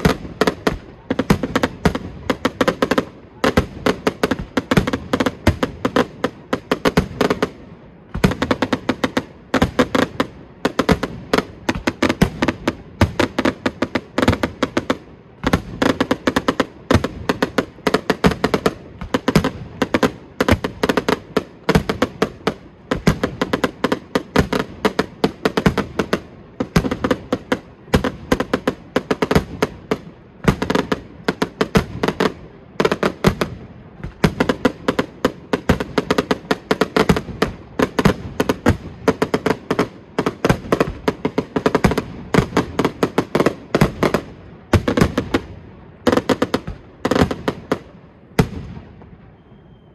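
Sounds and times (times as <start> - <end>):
fireworks bangs: 0.0 - 49.9.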